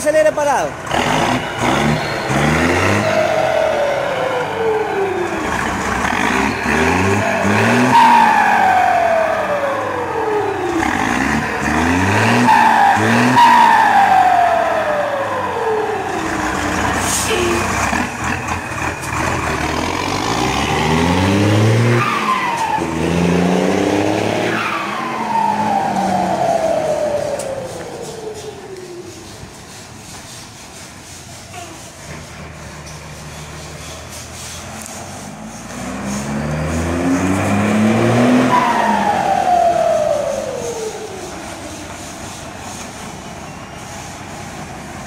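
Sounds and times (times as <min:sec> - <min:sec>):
diesel engine revving: 0:00.0 - 0:45.0
turbo whistle gliding down: 0:07.1 - 0:10.9, 0:12.0 - 0:16.7, 0:21.9 - 0:29.4, 0:37.7 - 0:42.1.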